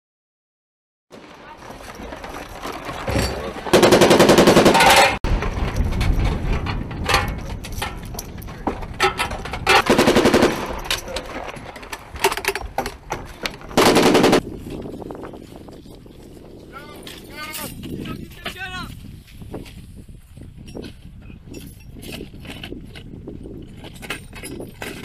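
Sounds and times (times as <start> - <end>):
machine gun firing bursts: 3.7 - 5.2, 9.8 - 10.8, 13.8 - 14.4.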